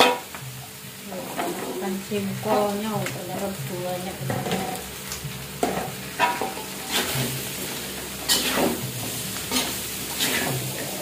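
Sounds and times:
slices sizzling in hot oil: 0:00.0 - 0:11.0
metal spatula scraping a wok: 0:05.7 - 0:11.0.

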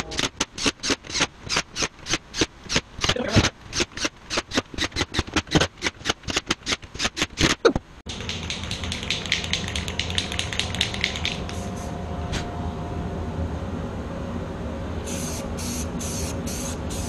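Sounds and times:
low hum: 0:07.7 - 0:17.0.

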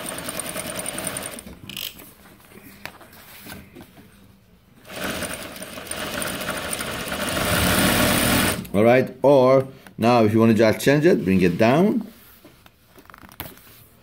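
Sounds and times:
sewing machine stitching: 0:00.0 - 0:01.4, 0:04.8 - 0:08.7.

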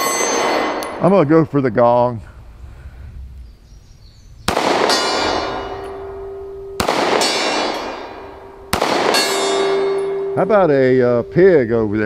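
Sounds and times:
steel gong ringing: 0:00.0 - 0:01.4, 0:04.8 - 0:12.0
pistol shots: 0:04.5 - 0:10.4.

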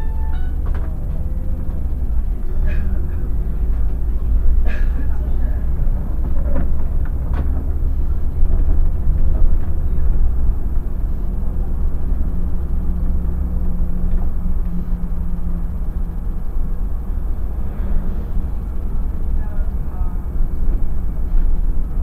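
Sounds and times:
bus engine and road rumble: 0:00.0 - 0:22.0
steady low hum: 0:00.0 - 0:22.0.

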